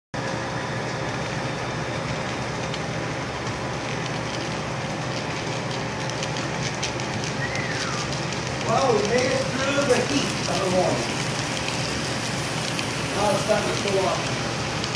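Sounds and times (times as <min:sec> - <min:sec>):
model train hum and rumble: 0:06.9 - 0:14.9.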